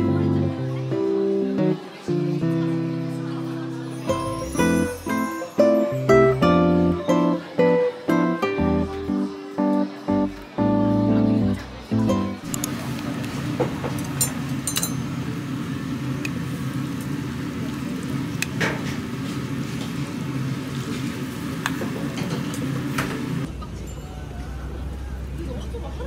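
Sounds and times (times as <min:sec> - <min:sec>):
chopsticks and dishes clinking: 0:14.0 - 0:15.2.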